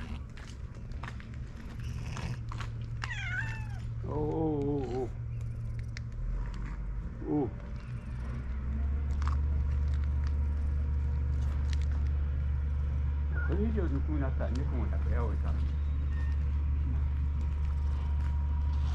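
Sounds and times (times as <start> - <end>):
cat meowing: 3.0 - 3.9.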